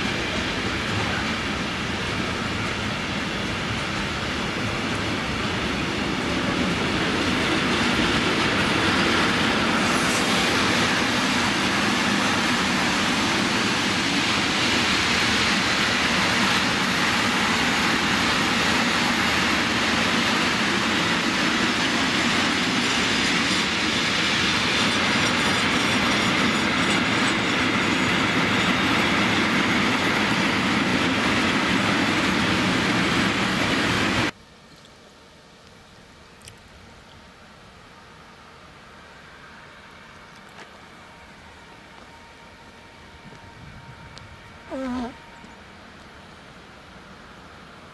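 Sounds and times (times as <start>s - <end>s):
clickety-clack over rail joints: 0.0s - 34.3s
train wheels rumbling on rails: 0.0s - 34.4s.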